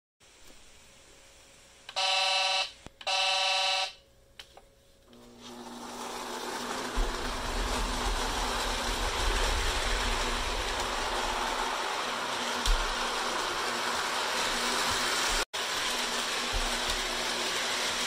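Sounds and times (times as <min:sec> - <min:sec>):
electronic toy train horn: 0:01.9 - 0:04.0
wheels rumbling on track: 0:06.4 - 0:14.1.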